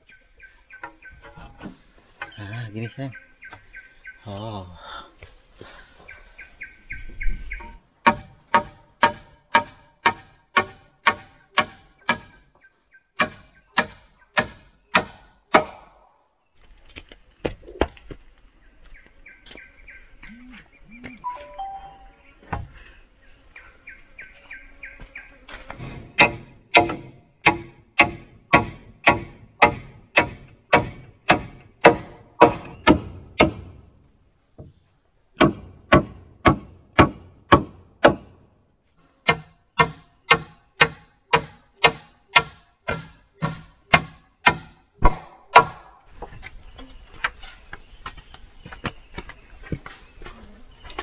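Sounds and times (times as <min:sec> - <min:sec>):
faint insects and forest ambience: 0:00.0 - 0:51.0
tool striking wood: 0:07.6 - 0:12.4, 0:13.2 - 0:15.9, 0:25.7 - 0:33.8, 0:35.4 - 0:38.4, 0:39.2 - 0:46.0.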